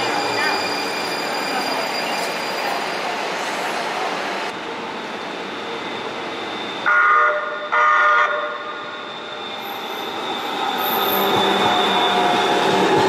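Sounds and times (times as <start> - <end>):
high wheel squeal: 0.0 - 3.9, 4.8 - 7.7, 8.3 - 13.0
train running noise: 0.0 - 13.0
train horn blasts: 6.9 - 8.7.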